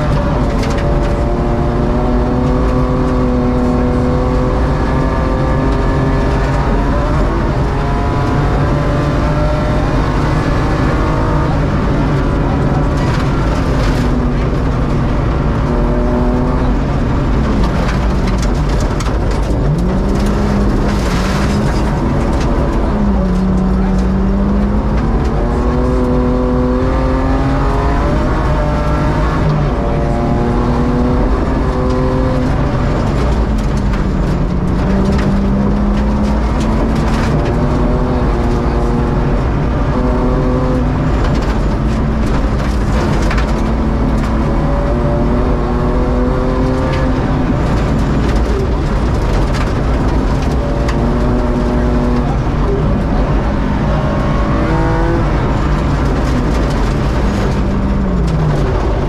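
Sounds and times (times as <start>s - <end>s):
rally car engine revving: 0.0s - 59.0s
gravel hitting car: 16.4s - 27.3s, 31.4s - 45.4s, 54.0s - 59.0s.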